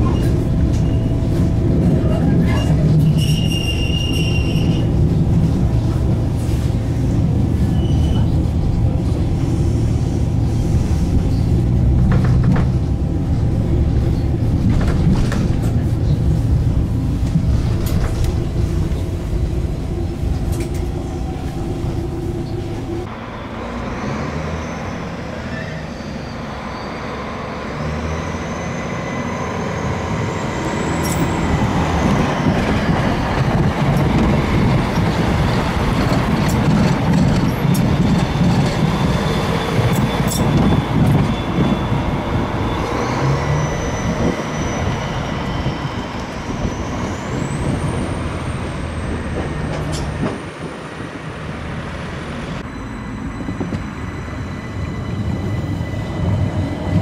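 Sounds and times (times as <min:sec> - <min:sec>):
tram passing with high whine: 0:00.0 - 0:57.0
tram ride rumble: 0:00.0 - 0:57.0.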